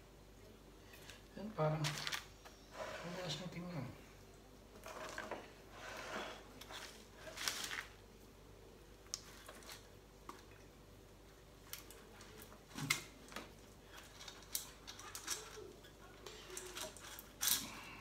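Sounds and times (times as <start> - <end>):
faint clicks and rustles: 8.9 - 18.0.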